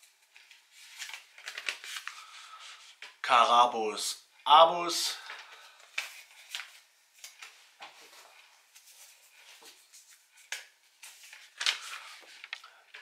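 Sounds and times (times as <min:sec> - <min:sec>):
paper rustling and crinkling: 0:00.0 - 0:03.2, 0:05.2 - 0:13.0.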